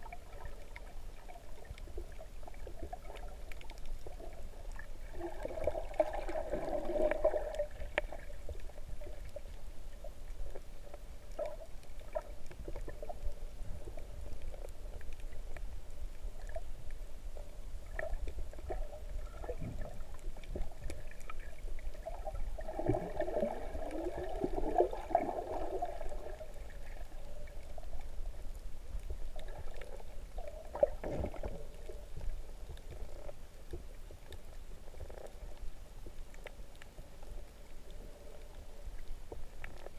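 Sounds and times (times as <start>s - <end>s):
water gurgling and bubbling: 0.0s - 9.5s, 17.8s - 28.1s, 29.4s - 32.2s
underwater water rumble: 0.0s - 39.9s.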